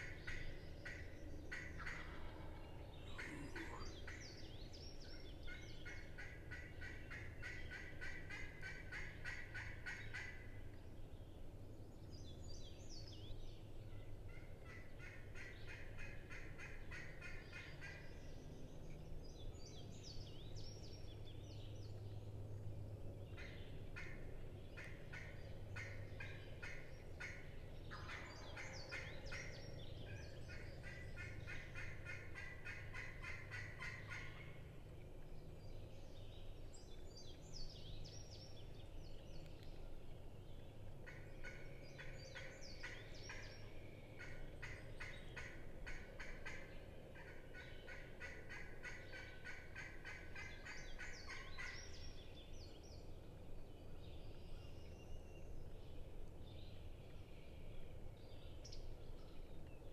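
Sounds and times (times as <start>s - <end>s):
turkey calling: 0.0s - 4.2s, 30.5s - 34.5s, 44.2s - 51.8s
songbird chirps: 0.0s - 59.9s
steady low hum: 0.0s - 59.9s.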